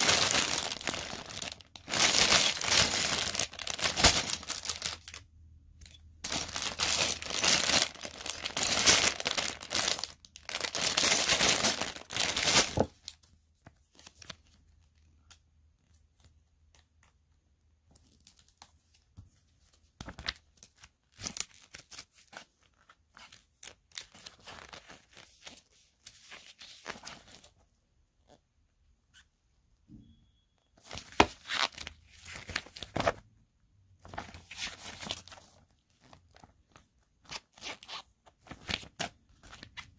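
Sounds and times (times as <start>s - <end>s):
packaging being torn and crinkled: 0.0s - 5.2s, 6.3s - 13.2s.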